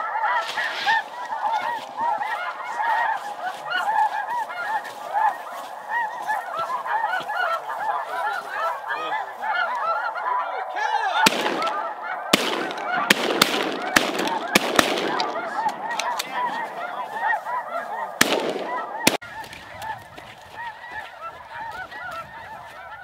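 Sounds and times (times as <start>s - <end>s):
geese flock calling: 0.0s - 23.0s
shotgun shot: 11.3s - 15.4s, 18.2s - 19.2s.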